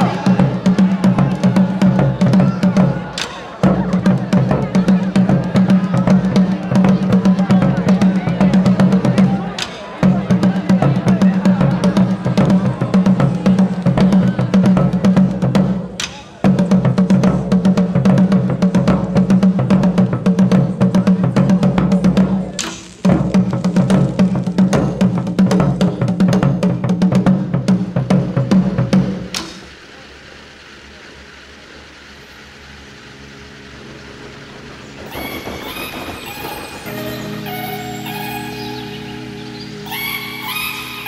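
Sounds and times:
fast driving drums: 0:00.0 - 0:41.0.

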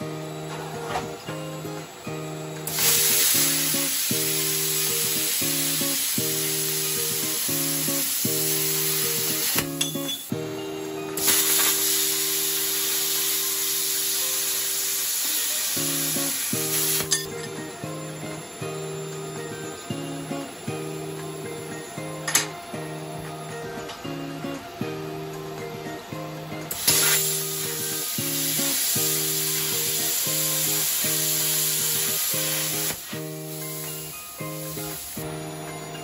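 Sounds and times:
background music: 0:00.0 - 0:36.0
plasma cutter hissing: 0:02.6 - 0:10.3, 0:11.2 - 0:22.5, 0:26.7 - 0:35.6.

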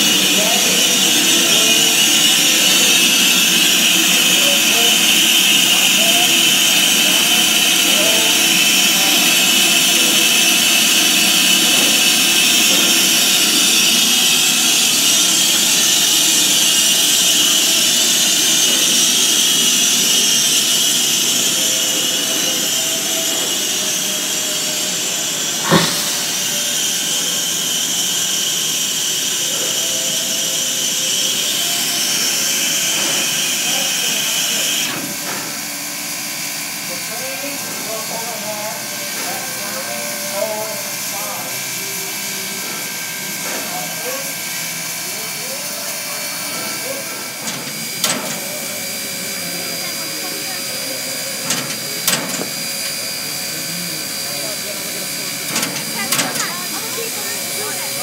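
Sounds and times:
steam hissing: 0:00.0 - 0:58.0
sharp knock: 0:25.6 - 0:26.4.

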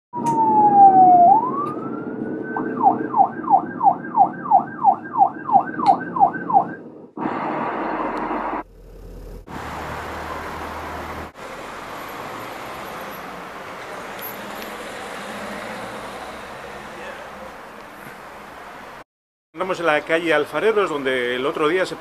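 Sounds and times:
emergency vehicle siren: 0:00.1 - 0:08.6
street traffic noise: 0:00.2 - 0:19.0, 0:19.6 - 0:22.0.

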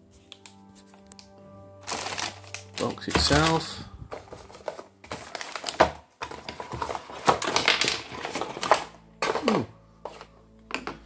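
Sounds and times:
cardboard packaging rustling: 0:00.4 - 0:11.0.

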